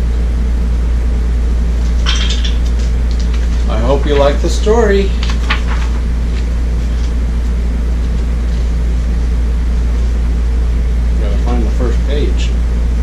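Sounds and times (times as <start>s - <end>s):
steady low hum: 0.0s - 13.0s
book pages turning: 2.8s - 8.6s.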